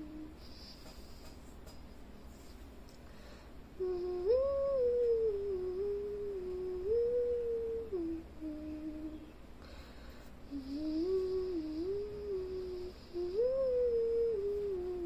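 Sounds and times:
person humming a slow tune: 0.0 - 1.4, 3.7 - 9.4, 10.4 - 15.0.

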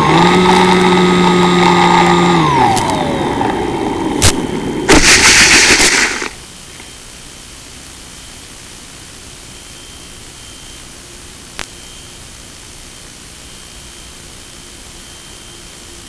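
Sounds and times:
electric motor and propeller: 0.0 - 6.4
plane scraping through grass: 0.0 - 6.4
click: 4.2 - 4.4, 11.6 - 11.8
steady hiss: 4.2 - 16.0.

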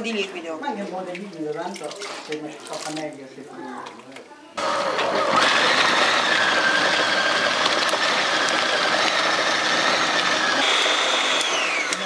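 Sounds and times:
food processor motor running: 4.6 - 12.0.

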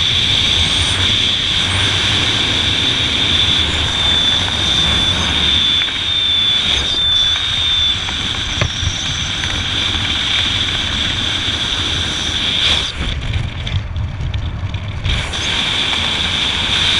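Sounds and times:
high whistle: 0.0 - 10.8
wind rushing over microphone: 0.0 - 16.9.

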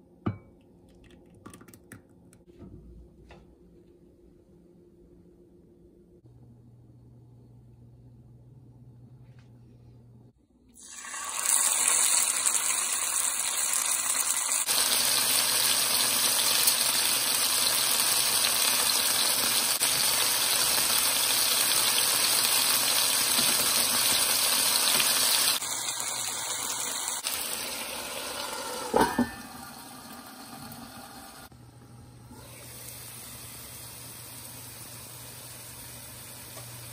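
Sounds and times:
chicken sizzling in hot oil: 10.8 - 31.5
lid knocking on pan: 28.9 - 29.5.

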